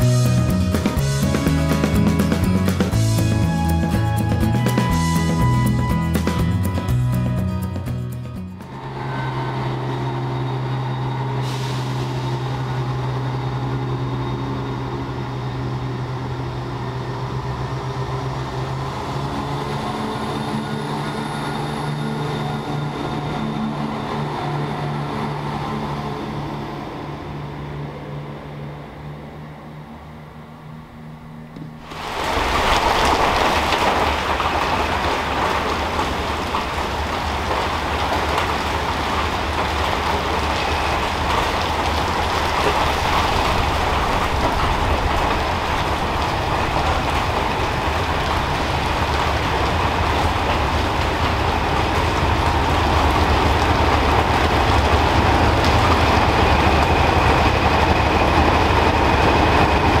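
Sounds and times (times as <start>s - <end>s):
diesel locomotive engine: 0.0s - 60.0s
train wheels on rails: 8.6s - 29.4s, 31.7s - 60.0s.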